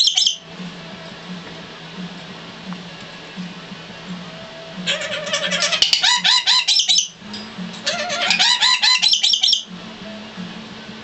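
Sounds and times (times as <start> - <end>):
bird giving harsh high-pitched calls: 0.0 - 0.4, 4.9 - 7.2, 7.8 - 9.7.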